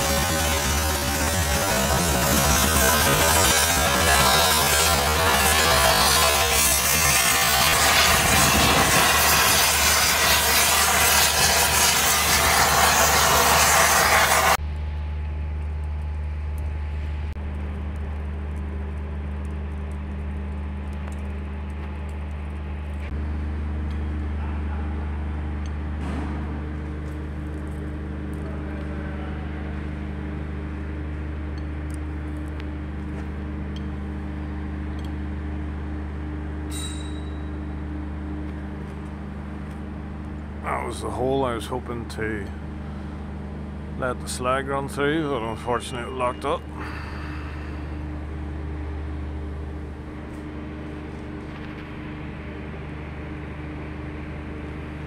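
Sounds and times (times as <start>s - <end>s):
thermal lance hissing: 0.0s - 14.6s, 44.2s - 49.1s
low machine hum: 0.0s - 55.0s.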